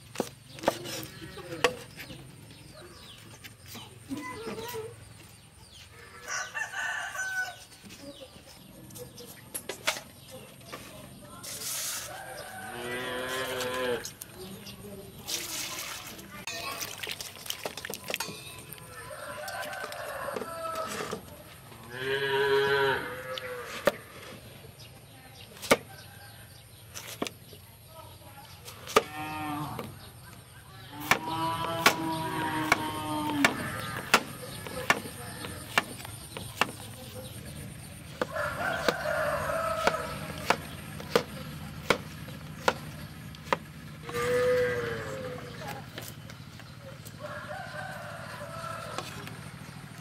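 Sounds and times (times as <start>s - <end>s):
rooster crowing: 6.2s - 7.7s, 18.9s - 21.2s, 38.2s - 40.6s, 47.1s - 49.4s
water splashing in metal basin: 15.2s - 20.0s
cleaver chopping on wooden board: 31.0s - 36.9s, 38.1s - 43.6s.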